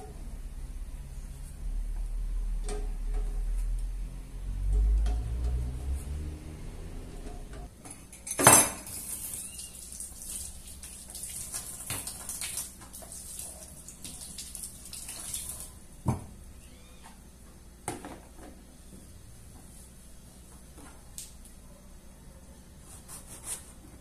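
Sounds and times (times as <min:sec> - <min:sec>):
dishes and utensils clattering: 0:07.2 - 0:09.3.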